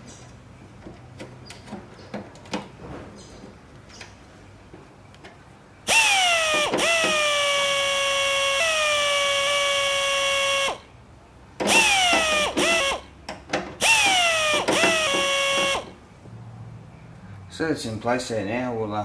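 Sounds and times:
electric screwdriver motor whine: 5.9s - 10.8s, 11.7s - 13.0s, 13.8s - 15.9s.

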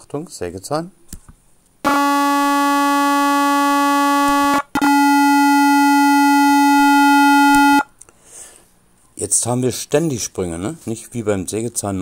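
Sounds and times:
sawtooth-wave tone: 1.8s - 7.9s
square-wave tone: 1.9s - 7.9s.

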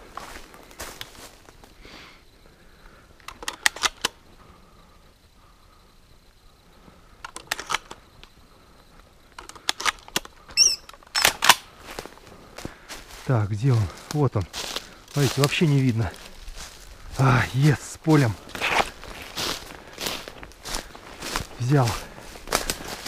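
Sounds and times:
footsteps crunching dry leaves: 0.0s - 1.7s, 11.8s - 23.0s.

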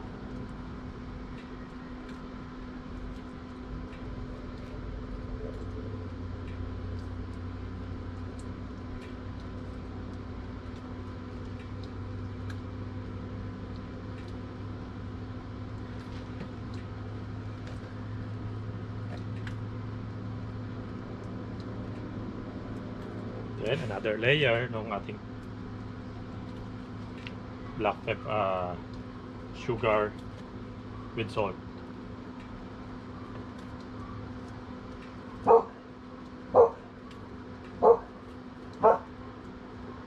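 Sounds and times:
low mechanical hum: 0.0s - 40.0s.

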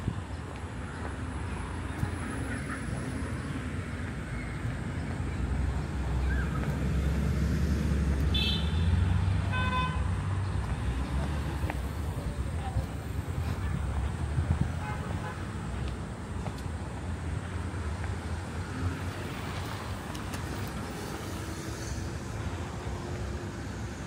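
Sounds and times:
road traffic rumble: 0.0s - 24.0s
vehicle horn beeps: 8.3s - 8.9s, 9.5s - 10.1s.

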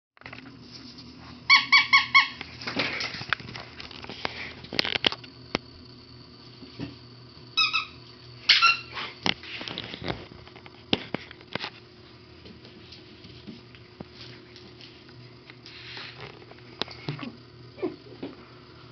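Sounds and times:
squeaky dog toy: 1.5s - 2.4s, 7.6s - 8.9s.

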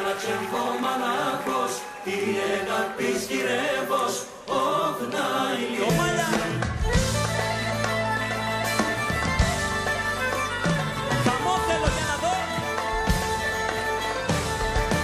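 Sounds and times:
group singing in unison: 0.0s - 7.4s.

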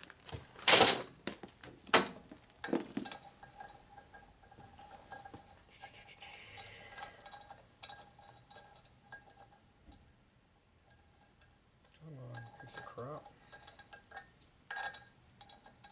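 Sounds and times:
faint steady hum: 2.3s - 15.9s
metal engine parts clinking: 2.6s - 5.8s, 6.6s - 10.2s, 10.8s - 15.9s.

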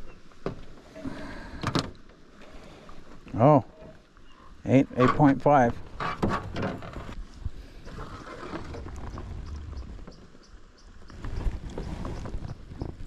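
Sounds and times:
knocks and rustles of movement: 4.9s - 13.0s
wind buffeting microphone: 7.0s - 13.0s.

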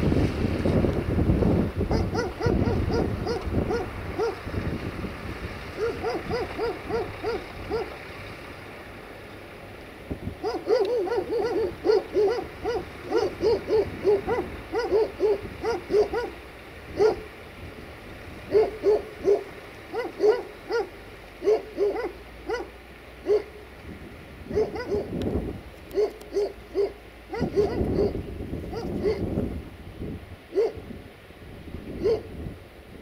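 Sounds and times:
dog barking: 1.9s - 4.4s, 5.8s - 7.9s, 10.4s - 16.4s, 17.0s - 17.3s, 18.5s - 23.6s, 24.5s - 25.1s, 25.9s - 29.3s, 30.5s - 30.8s, 32.0s - 32.3s.

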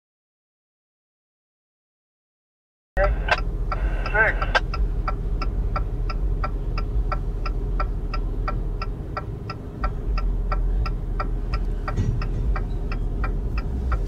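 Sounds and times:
freight train rumbling: 3.0s - 14.0s.

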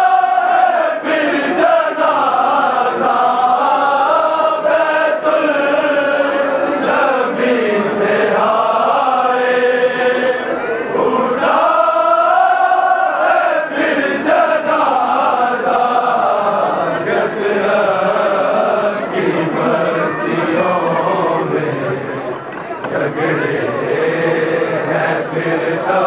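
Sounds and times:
men chanting a lament in unison: 0.0s - 22.2s, 22.9s - 26.0s.

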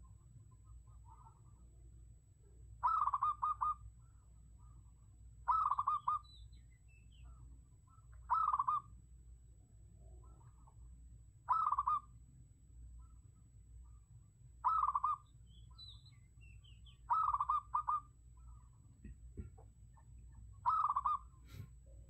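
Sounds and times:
faint bird chirps: 0.0s - 9.0s, 9.9s - 12.2s, 12.8s - 19.1s, 19.8s - 22.0s
dove cooing in staccato notes: 2.8s - 4.8s, 5.5s - 6.3s, 7.9s - 9.0s, 11.5s - 12.2s, 14.6s - 15.2s, 17.0s - 21.6s.

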